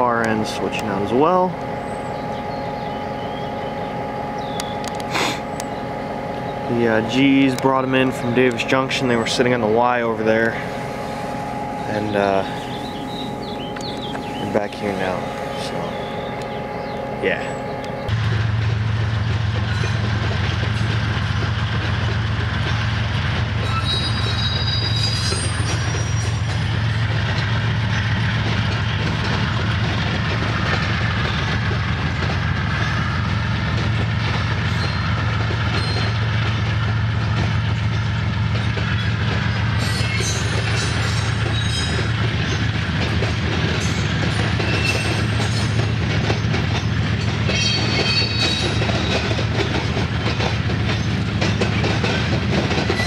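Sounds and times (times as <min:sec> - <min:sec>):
diesel locomotive engine drone: 0:00.0 - 0:53.0
wheel squeals: 0:19.6 - 0:21.6, 0:22.7 - 0:53.0.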